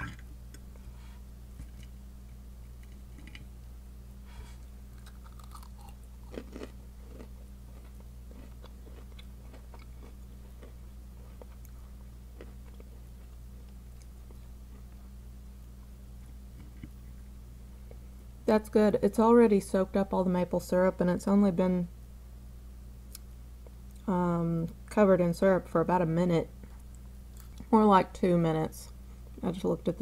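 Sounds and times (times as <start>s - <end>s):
steady low hum: 0.0s - 30.0s
person chewing: 4.5s - 15.0s.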